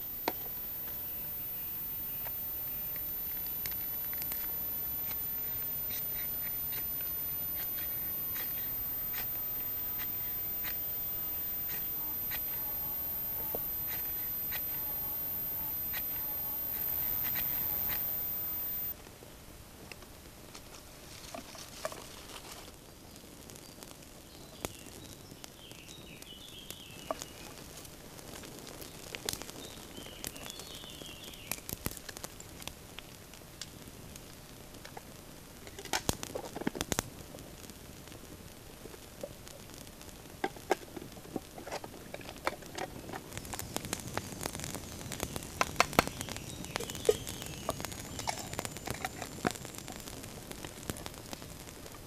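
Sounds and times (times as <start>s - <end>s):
bird chirping: 0.0s - 18.9s.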